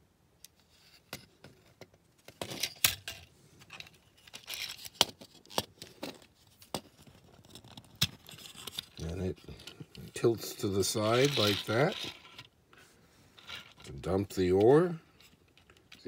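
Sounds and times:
plastic toy clicks and clatters: 11.1 - 12.5.

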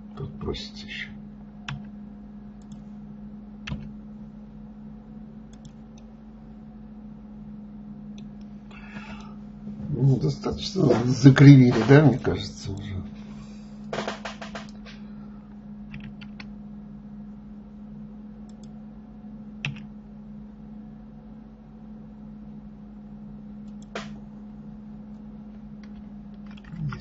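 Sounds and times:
steady low hum: 0.0 - 27.0
keyboard keys clicking: 3.7 - 3.9, 15.9 - 16.5, 19.6 - 19.9, 25.8 - 27.0.

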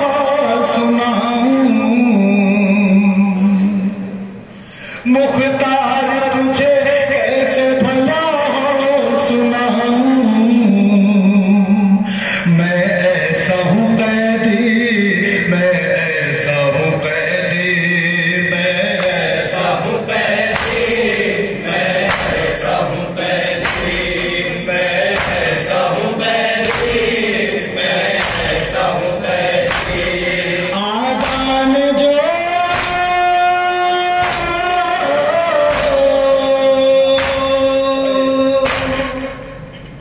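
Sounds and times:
men chanting a lament: 0.0 - 4.2, 5.0 - 39.7
reciter on a microphone: 0.0 - 40.0
chest-beating slaps: 18.9 - 19.7, 20.4 - 30.4, 31.2 - 31.6, 32.6 - 33.2, 34.1 - 35.0, 35.7 - 36.2, 37.1 - 37.7, 38.6 - 39.2.

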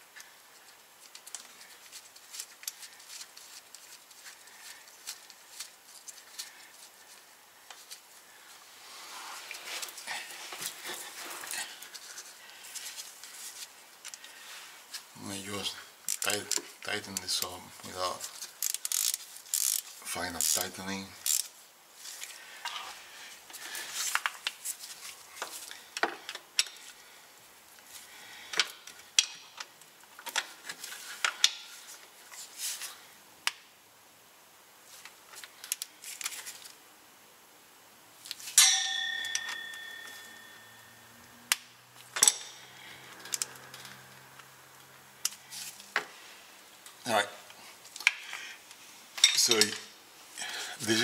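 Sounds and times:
sharp metallic clang: 38.5 - 41.0.

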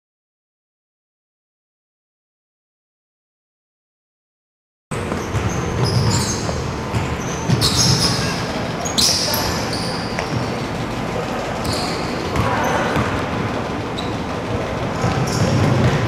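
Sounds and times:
sneakers squeaking on court: 4.9 - 16.0
basketball bouncing: 5.0 - 10.6, 11.6 - 13.5, 15.0 - 16.0
hall hubbub: 5.0 - 16.0.

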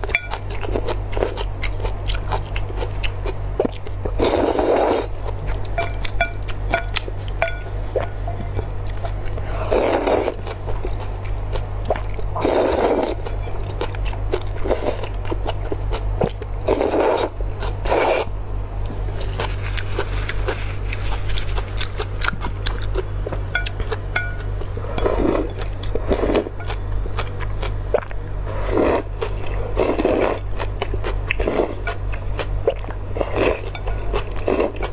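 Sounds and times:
constant low hum: 0.0 - 34.9
noodles slurped: 4.2 - 5.2, 9.4 - 10.6, 11.9 - 13.3, 16.7 - 18.3, 27.9 - 30.5
quiet chewing: 18.8 - 34.9.

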